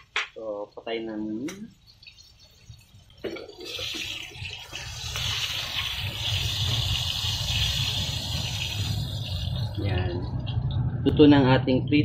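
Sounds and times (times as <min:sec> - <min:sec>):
oil sizzling in a wok: 0:00.7 - 0:10.6
low rumble: 0:07.8 - 0:12.0.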